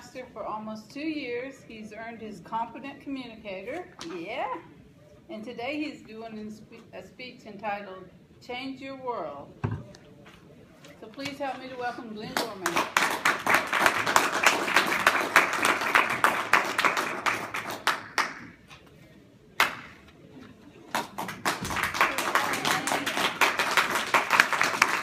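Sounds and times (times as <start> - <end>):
audience applauding: 12.6 - 18.5, 20.9 - 25.0.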